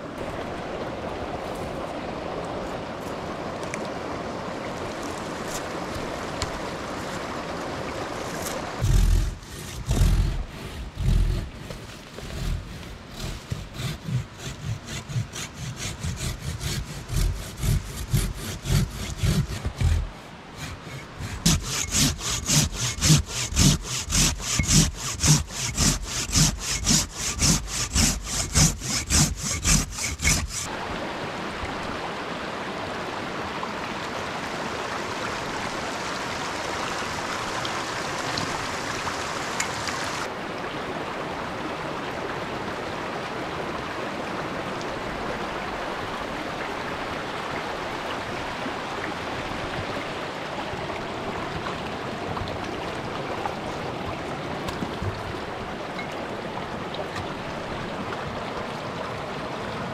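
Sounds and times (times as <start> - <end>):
mountain stream rushing: 0.0 - 59.9
hand saw cutting branch: 8.3 - 30.7.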